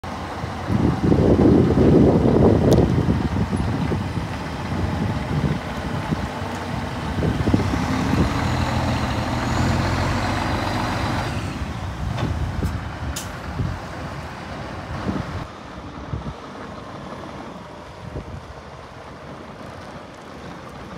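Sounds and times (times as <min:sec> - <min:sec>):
diesel engine idling: 0:00.0 - 0:20.9
brief sharp clicks or hisses: 0:13.2 - 0:13.4.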